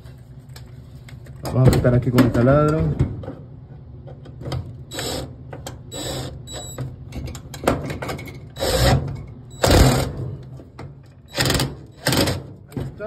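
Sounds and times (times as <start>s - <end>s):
cordless drill driving screw: 4.9s - 5.3s.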